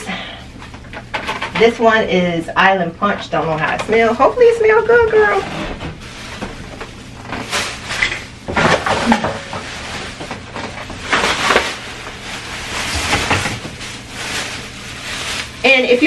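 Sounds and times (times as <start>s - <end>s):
plastic bag rustling: 3.6s - 16.0s.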